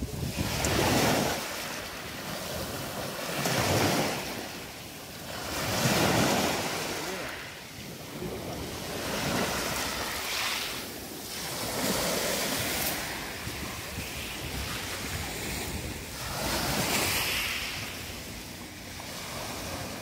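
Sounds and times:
wind noise on microphone: 0:00.0 - 0:01.6, 0:11.4 - 0:18.6
waves washing over pebbles: 0:00.0 - 0:20.0.

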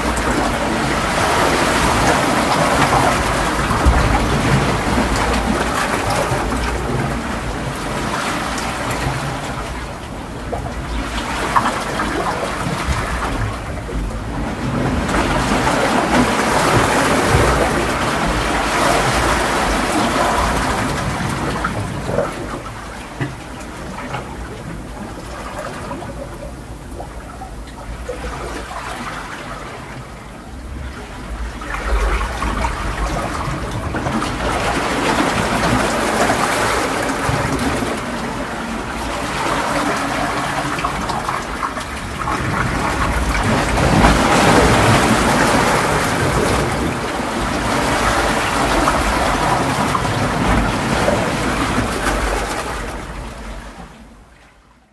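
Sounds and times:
ocean waves breaking: 0:00.0 - 0:54.9.

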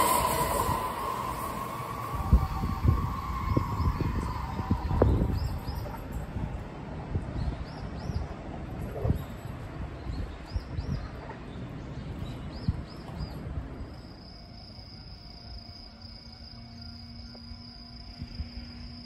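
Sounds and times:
low rumble: 0:00.0 - 0:07.4
insect trill: 0:13.9 - 0:19.0.

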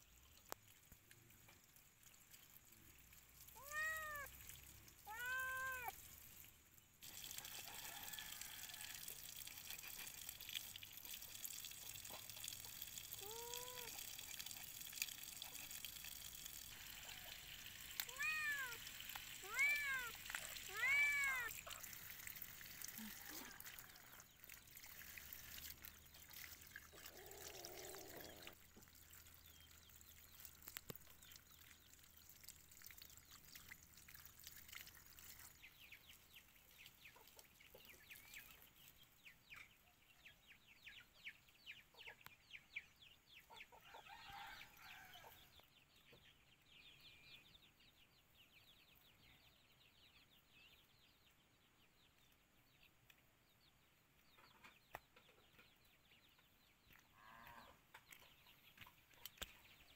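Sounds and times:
hose water splashing on leaves: 0:00.0 - 0:39.2.

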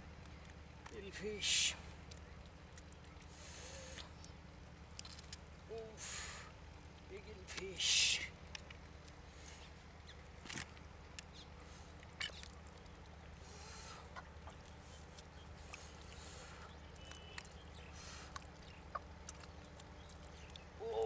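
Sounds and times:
hands squelching in wet mud: 0:08.5 - 0:21.0.

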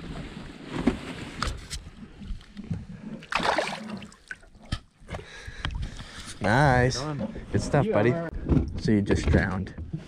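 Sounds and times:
water sloshing and splashing: 0:01.8 - 0:07.3.

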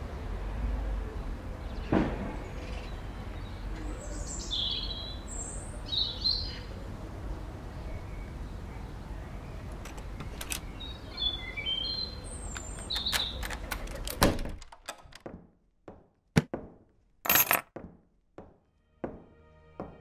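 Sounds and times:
street ambience: 0:00.0 - 0:20.0
birds chirping: 0:01.1 - 0:14.3.

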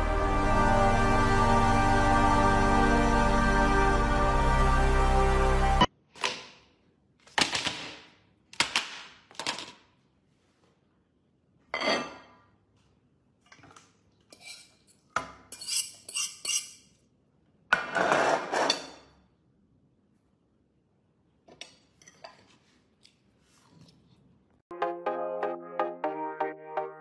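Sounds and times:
fork scraping on plate: 0:14.3 - 0:14.9, 0:15.5 - 0:16.9.

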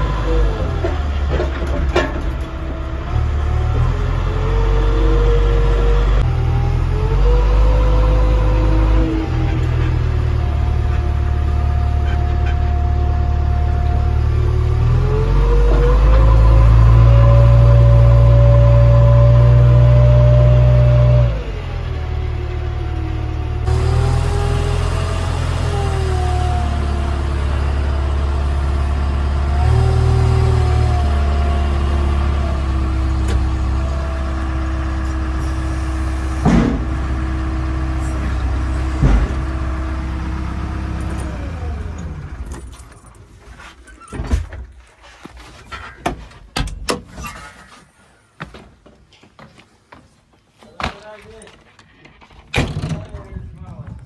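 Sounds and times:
diesel engine revving: 0:00.0 - 0:42.7.

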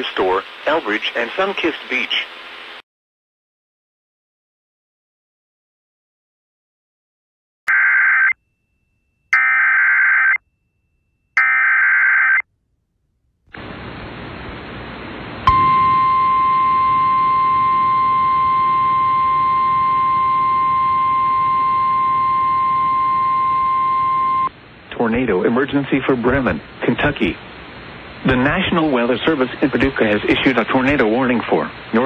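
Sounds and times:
radio hiss: 0:00.0 - 0:02.8, 0:13.6 - 0:15.4, 0:24.9 - 0:32.0
steady warning alarm tone: 0:15.5 - 0:24.5.

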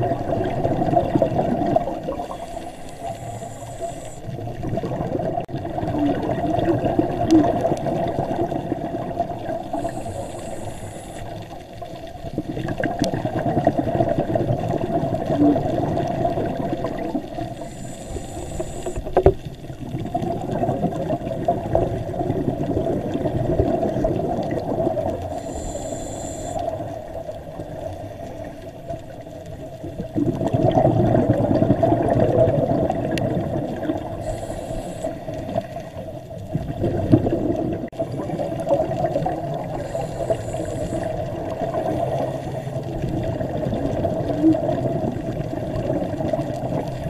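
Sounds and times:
exhaled bubbles gurgling: 0:00.0 - 0:47.0
regulator inhalation hiss: 0:02.1 - 0:04.4, 0:09.7 - 0:11.6, 0:17.5 - 0:19.2, 0:25.2 - 0:27.0, 0:34.1 - 0:36.0, 0:39.7 - 0:42.9.

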